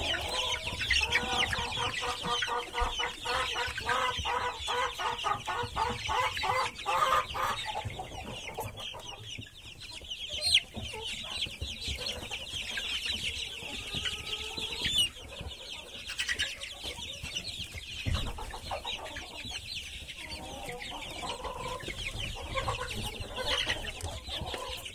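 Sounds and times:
chicks peeping: 0.0 - 24.9.

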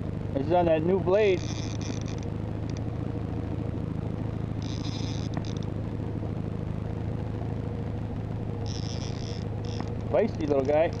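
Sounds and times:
boat motor humming: 0.0 - 11.0
high buzz: 0.0 - 11.0.

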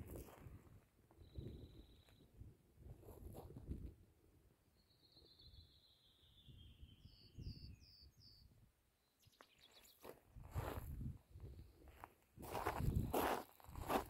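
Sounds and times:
footsteps on rocky ground: 0.0 - 0.9, 9.9 - 14.0
songbird singing: 1.1 - 2.4, 4.6 - 10.2.

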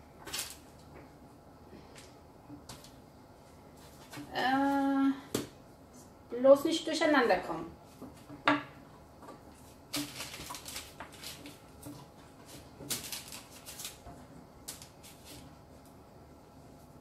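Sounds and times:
parchment paper rustling: 9.5 - 15.8.

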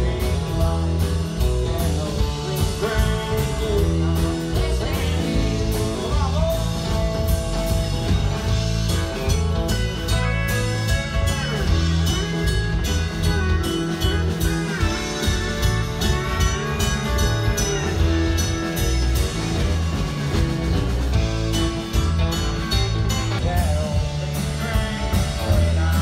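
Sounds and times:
bass: 0.0 - 26.0
electric guitar lead: 0.0 - 26.0
steady drum beat: 0.0 - 26.0.

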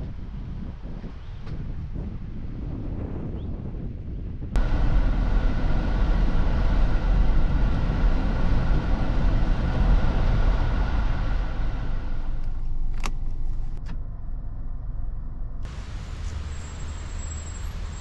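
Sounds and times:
car driving rumble: 4.6 - 18.0.

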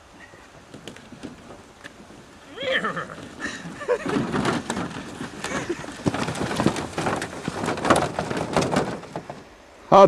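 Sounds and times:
canoe trolley knocking and rattling: 0.2 - 9.6
footsteps: 3.2 - 9.5.

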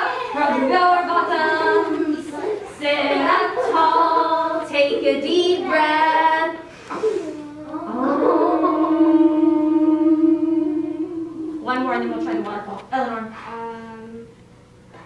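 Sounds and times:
child and woman singing: 0.4 - 6.7.

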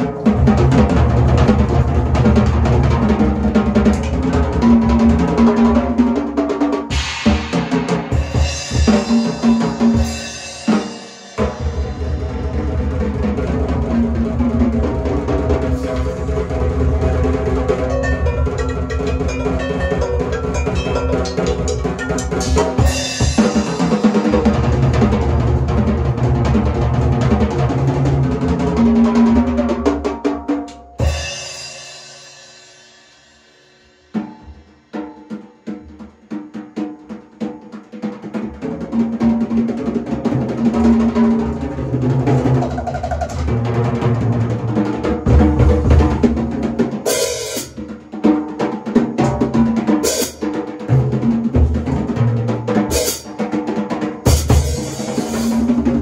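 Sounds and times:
drum kit played hard: 0.0 - 56.0
cymbals ringing: 17.6 - 24.4.

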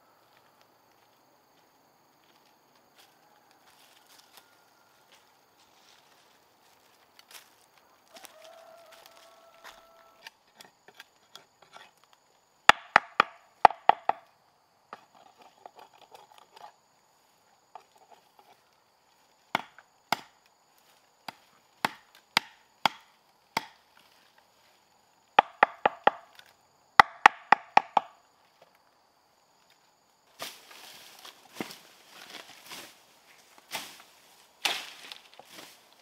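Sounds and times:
chopping blows into wood: 21.3 - 23.8.

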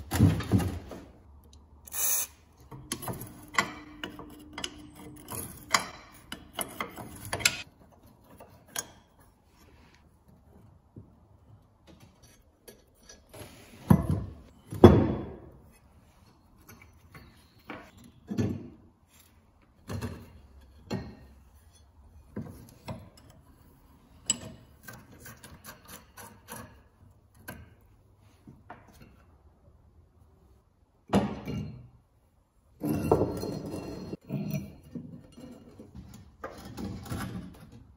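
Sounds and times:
metal taps and scrapes: 2.6 - 9.3.

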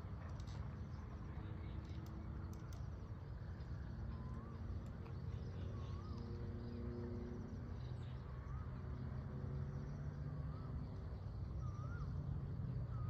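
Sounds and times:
low steady rumble: 0.0 - 13.0
bird whistled call: 4.1 - 4.8, 5.5 - 6.4, 11.5 - 12.2.

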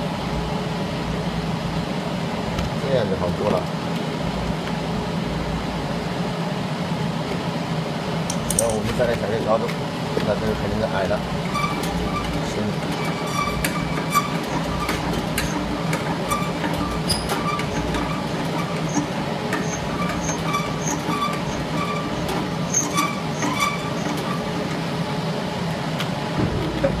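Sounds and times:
sealing machine whirring hum: 0.0 - 27.0.

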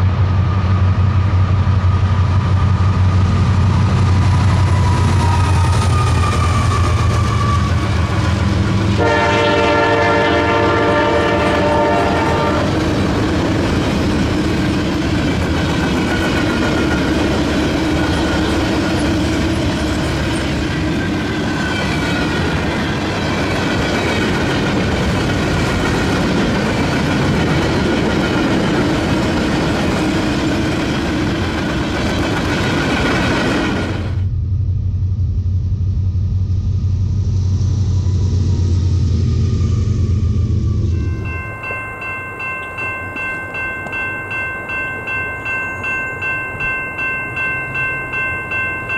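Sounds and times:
diesel locomotives rumbling: 0.0 - 48.9
locomotive air horn: 6.1 - 12.8
wheels on rails clickety-clack: 11.3 - 34.2.

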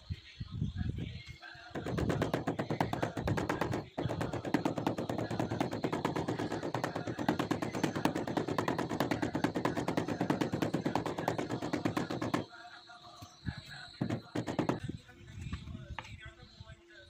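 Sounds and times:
rubber mallet tapping on tile: 1.8 - 12.5, 14.0 - 14.8.

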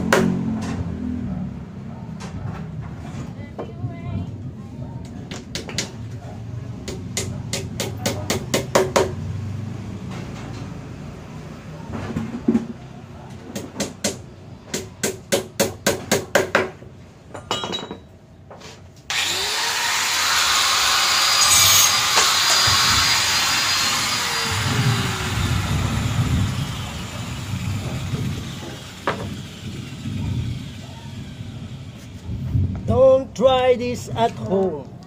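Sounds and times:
machine motor rushing noise: 19.1 - 32.9.

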